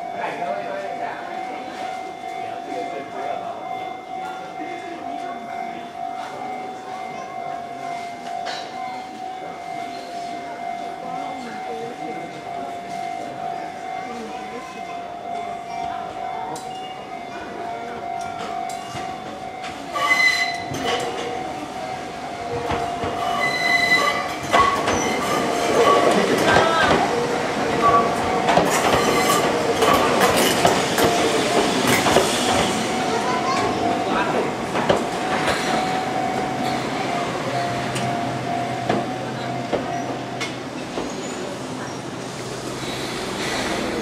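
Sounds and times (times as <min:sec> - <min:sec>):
steady high tone: 0:00.0 - 0:40.8
electric train running: 0:10.6 - 0:44.0
train wheels squealing: 0:20.0 - 0:20.7, 0:23.2 - 0:24.3, 0:41.0 - 0:42.1.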